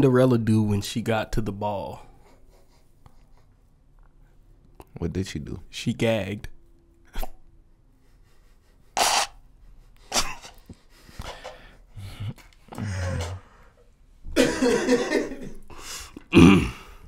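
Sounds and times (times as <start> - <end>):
men laughing: 2.1 - 3.7, 12.0 - 13.5, 14.4 - 15.8
coughs: 10.1 - 10.6, 16.2 - 16.9.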